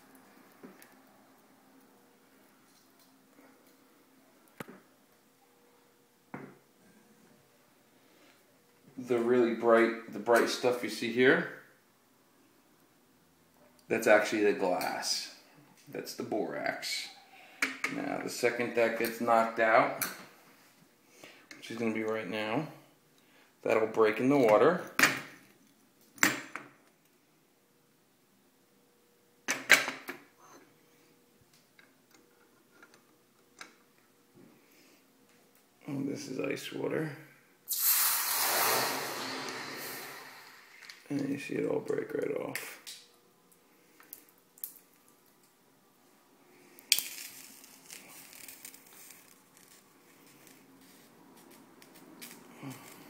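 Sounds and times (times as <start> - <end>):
light crackles: 0.0 - 4.9, 37.7 - 45.6, 46.5 - 53.0.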